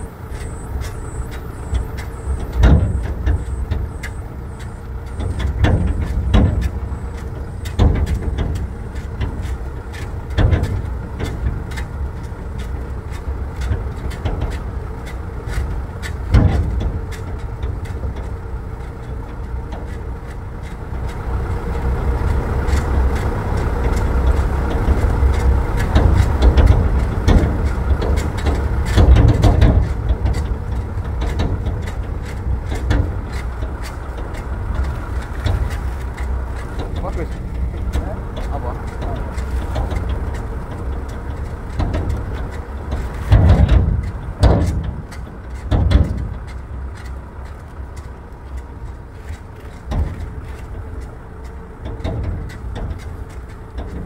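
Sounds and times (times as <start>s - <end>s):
sharp knocks and jolts: 0.0s - 54.0s
vehicle engine and road rumble: 0.0s - 54.0s.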